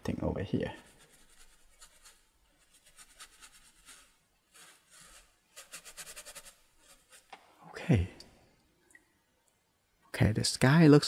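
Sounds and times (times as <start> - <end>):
bristle brush scrubbing paper: 0.8 - 7.3.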